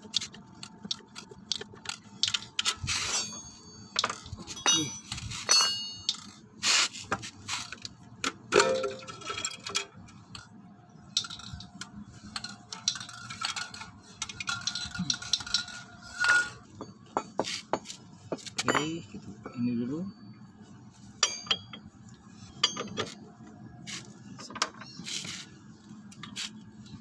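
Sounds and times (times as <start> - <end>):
metallic clinks and knocks: 3.1 - 6.4, 21.2 - 23.2.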